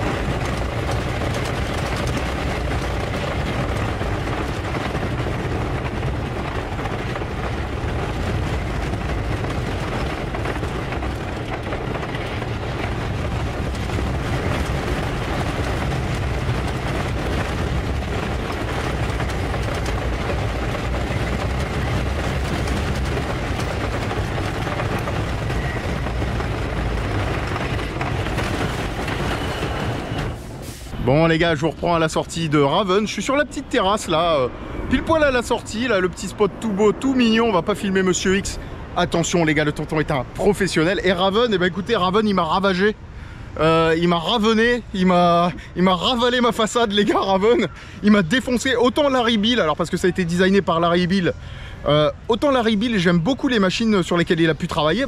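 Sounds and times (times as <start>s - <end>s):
roller coaster rumbling on wooden track: 0.0s - 55.0s.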